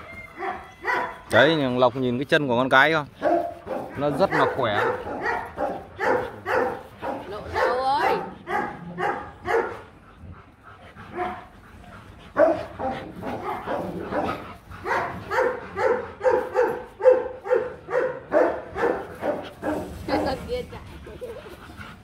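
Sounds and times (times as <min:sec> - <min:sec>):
dog barking: 0:00.4 - 0:01.4, 0:03.2 - 0:09.9, 0:11.1 - 0:11.5, 0:12.4 - 0:20.4.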